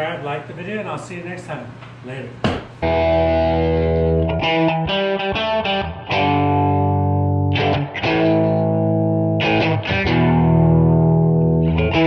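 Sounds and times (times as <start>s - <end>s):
distorted electric guitar chords: 2.8s - 12.0s.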